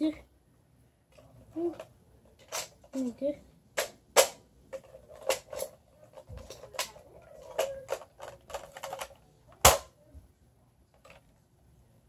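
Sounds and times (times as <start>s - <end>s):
plastic toy clicks and clacks: 1.6s - 3.2s, 3.8s - 9.9s
loud plastic snap: 3.8s - 4.4s, 9.6s - 9.9s.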